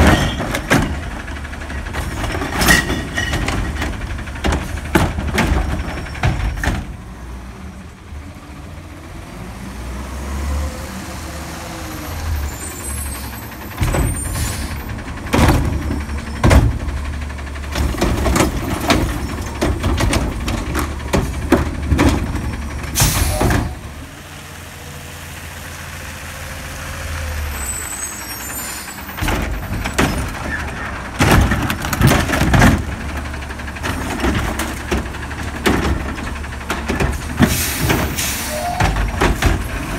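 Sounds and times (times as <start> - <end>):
metal clanks and bangs: 0.0 - 7.0, 13.3 - 24.0, 28.9 - 39.9
truck engine revving: 6.8 - 39.9.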